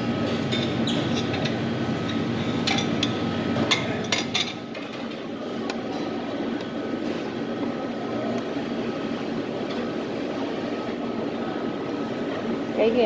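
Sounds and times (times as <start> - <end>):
restaurant dining room hum: 0.0 - 13.0
utensils clinking on metal pans: 0.4 - 5.2.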